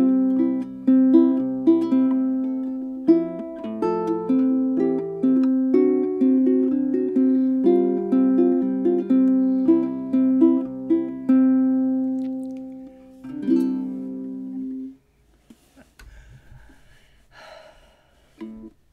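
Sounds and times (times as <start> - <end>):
small guitar picked notes: 0.0 - 15.0.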